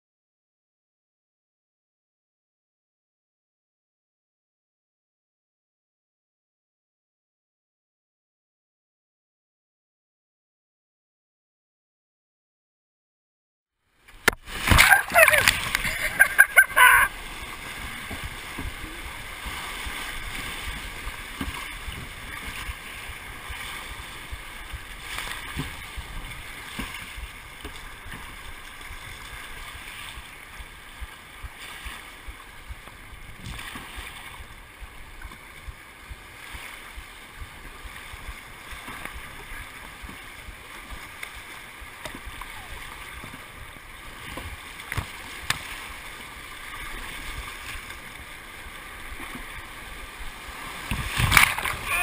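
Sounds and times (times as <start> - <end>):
wave splashing over kayak: 14.0 - 52.0
whitewater rapids rushing: 14.5 - 29.7, 44.8 - 52.0.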